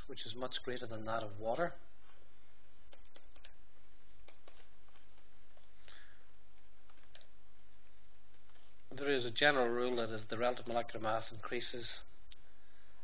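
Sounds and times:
stylus tapping on tablet: 0:02.8 - 0:05.8.

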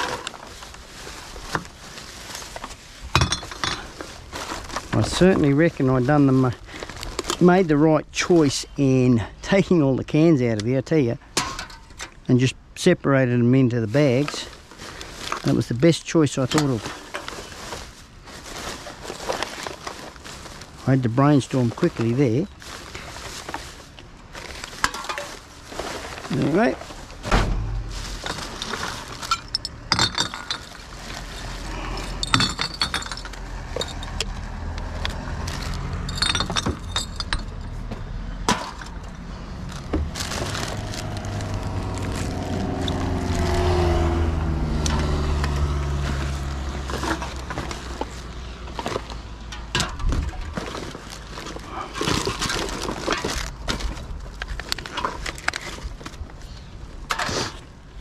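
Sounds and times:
plastic bags rustling: 0:00.0 - 0:08.8, 0:13.9 - 0:58.0
bottles and cans clinking: 0:03.2 - 0:03.9, 0:28.2 - 0:34.2, 0:35.7 - 0:37.8
low rumble: 0:27.0 - 0:29.9, 0:39.1 - 0:46.8.

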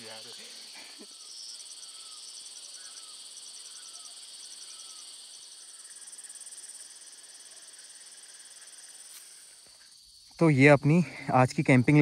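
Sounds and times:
insect pulsed chirps: 0:00.0 - 0:12.0
insects trilling: 0:00.0 - 0:12.0.

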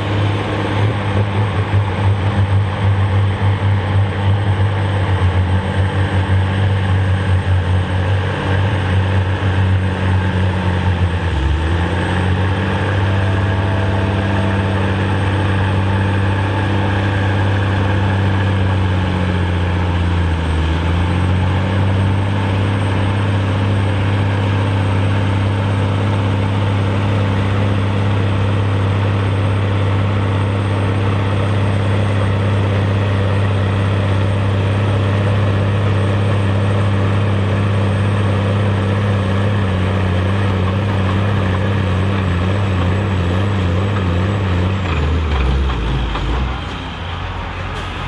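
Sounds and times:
tractor diesel engine under load: 0:00.0 - 0:48.0.

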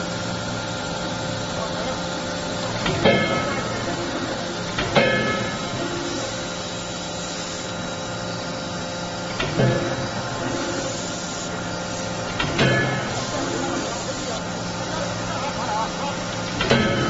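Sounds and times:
machine hum: 0:00.0 - 0:17.0
forging hammer metallic blows: 0:02.8 - 0:06.4, 0:12.3 - 0:13.8, 0:16.5 - 0:17.0.

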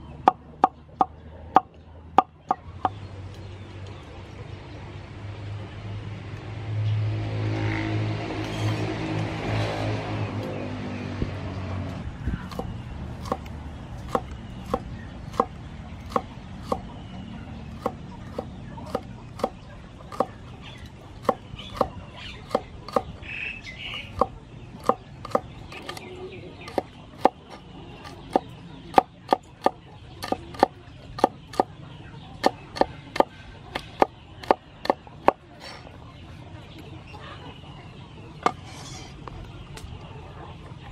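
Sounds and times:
cleaver chopping on wooden board: 0:12.5 - 0:13.5, 0:14.1 - 0:16.9, 0:17.8 - 0:20.4, 0:21.2 - 0:23.1, 0:23.9 - 0:26.0, 0:26.7 - 0:31.7, 0:32.4 - 0:35.4.

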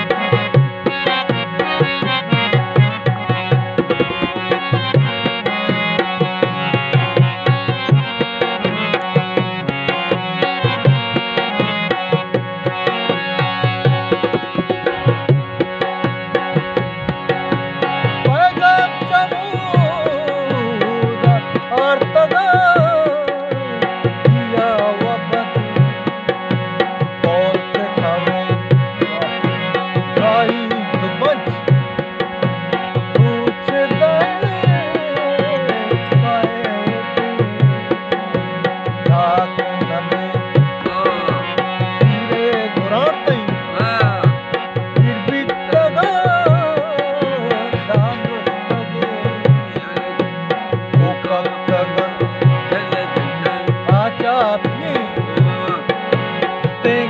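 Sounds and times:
drum beating steady rhythm: 0:00.0 - 0:57.0
harmonium chords and melody: 0:00.0 - 0:57.0
person singing: 0:18.1 - 0:26.1, 0:33.2 - 0:57.0.

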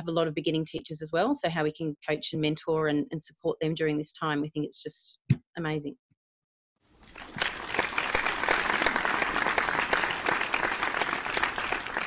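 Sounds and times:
group applauding: 0:07.0 - 0:12.0.

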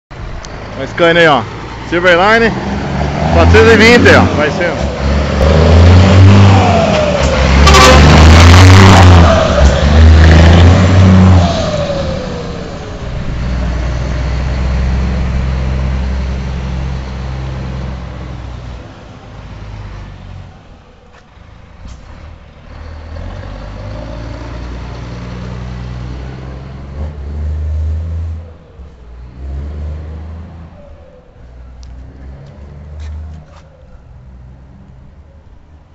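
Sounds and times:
diesel truck driving past: 0:00.1 - 0:33.4
turbocharger whistle: 0:07.6 - 0:09.7.

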